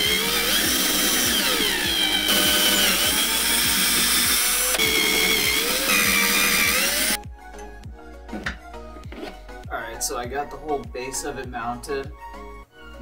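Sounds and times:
electric drill boring into wood: 0.0s - 7.2s.

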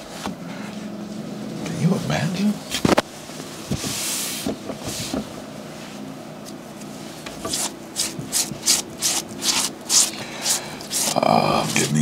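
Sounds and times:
hand rubbing a sneaker: 3.6s - 12.0s
brush scrubbing shoe sole: 7.5s - 12.0s.

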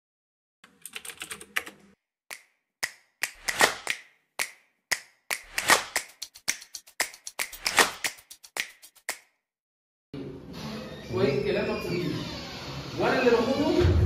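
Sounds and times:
keyboard typing clicks: 0.7s - 1.9s
sharp clicks: 2.3s - 9.2s.

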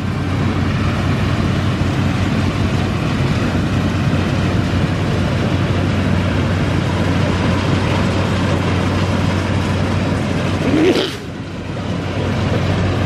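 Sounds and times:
combine harvester diesel drone: 0.0s - 13.0s.

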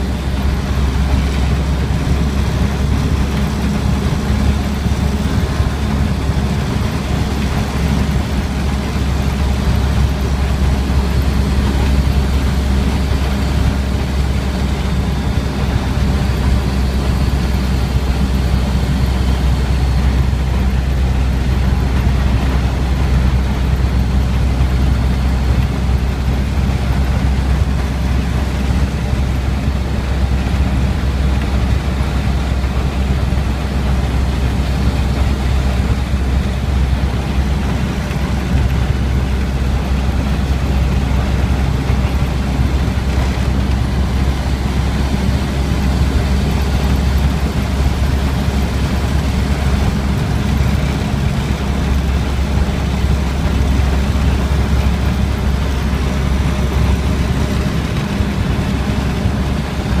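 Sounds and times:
truck engine running: 0.0s - 60.0s
wind and road noise: 0.0s - 60.0s.

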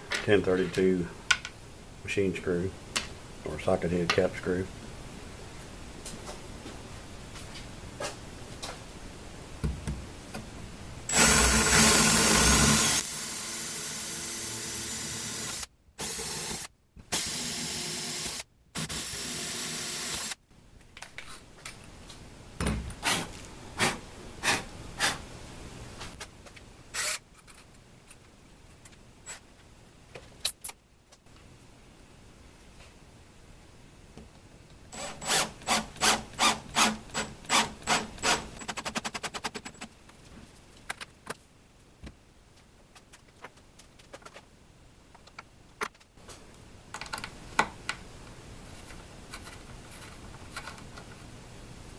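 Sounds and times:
cordless drill boring: 11.1s - 20.4s.

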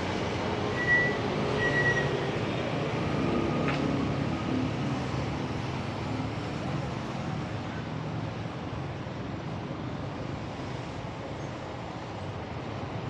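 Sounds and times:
motorbikes and cars on road: 0.0s - 13.0s.

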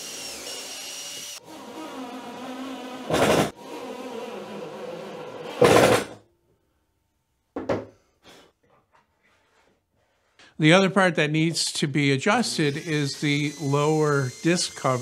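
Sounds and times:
cordless drill driving screws: 12.5s - 15.0s.

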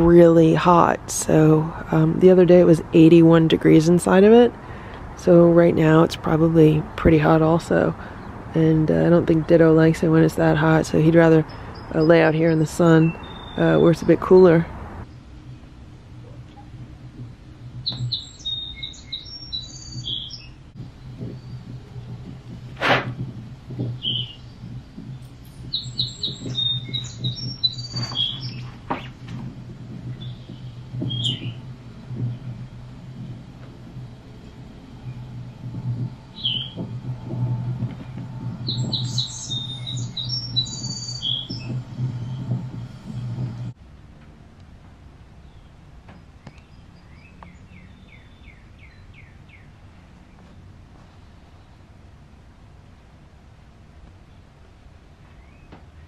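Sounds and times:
low background rumble: 0.0s - 56.0s
steady low hum: 0.0s - 56.0s
bird chirping: 11.3s - 14.4s, 17.8s - 43.7s, 45.4s - 51.9s
bird whistling down-slurred notes: 25.7s - 28.7s, 36.4s - 36.8s, 38.6s - 42.4s.

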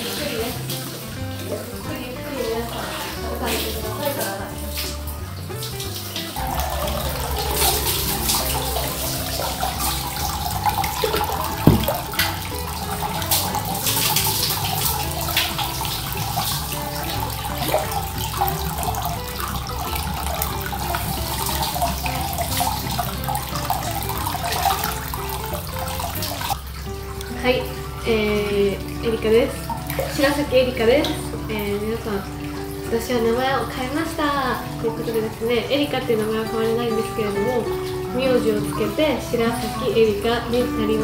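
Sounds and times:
water splashing and pouring: 0.0s - 41.0s
sharp knock: 11.6s - 12.1s.

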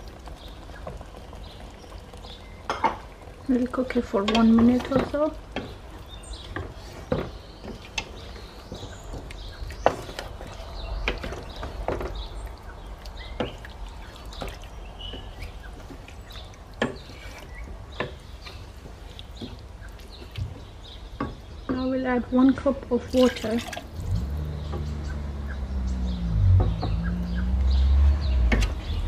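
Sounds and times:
wet stirring of thick curry: 4.2s - 21.4s.

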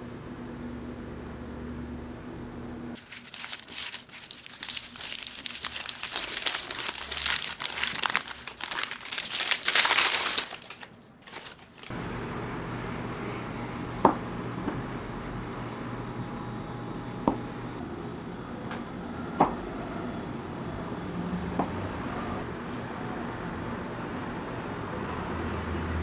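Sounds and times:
baking paper crinkling: 3.0s - 12.0s.

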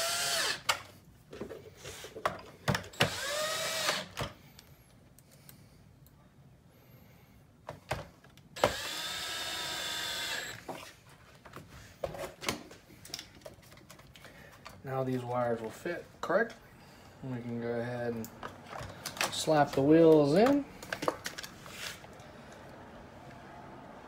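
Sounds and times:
cordless drill running: 0.0s - 0.7s, 2.9s - 4.2s, 8.6s - 10.6s.

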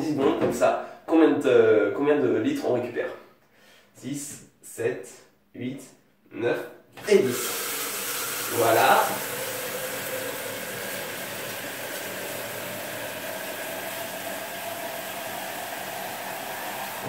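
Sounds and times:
shower water spraying into tub: 7.0s - 17.0s.

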